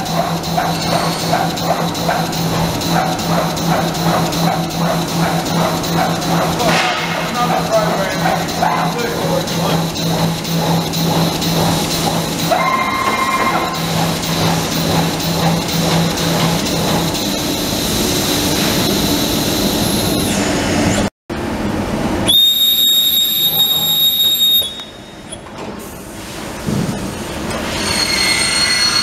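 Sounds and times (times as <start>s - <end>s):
punch press mechanical din: 0.0s - 17.5s.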